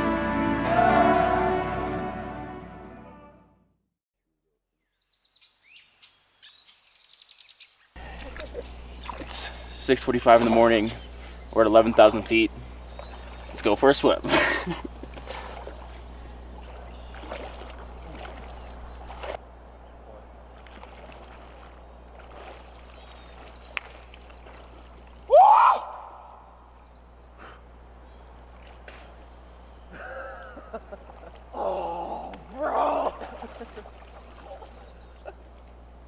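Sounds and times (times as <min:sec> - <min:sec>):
water sloshing: 0:08.0 - 0:19.4, 0:20.3 - 0:25.3, 0:28.4 - 0:31.6, 0:32.2 - 0:35.9
swimmers shouting and whooping: 0:25.2 - 0:26.5, 0:31.5 - 0:35.3
person yelling: 0:25.3 - 0:26.4, 0:31.6 - 0:33.3.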